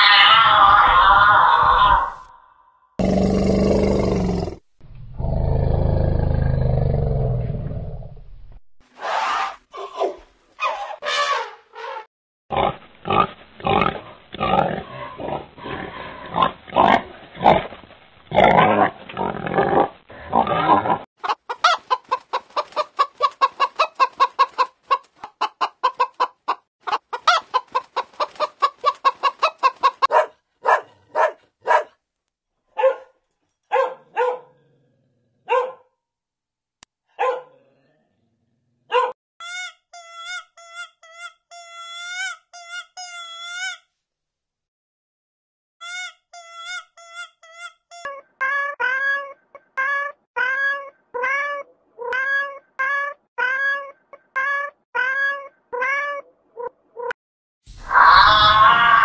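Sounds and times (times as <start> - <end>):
loud dense animal calls: 0.0 - 3.2, 57.8 - 59.0
chickens clucking: 21.2 - 30.1.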